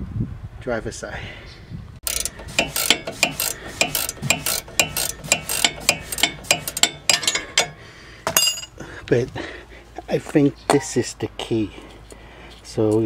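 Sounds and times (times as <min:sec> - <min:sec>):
ratchet wrench clicking: 0:02.0 - 0:07.8.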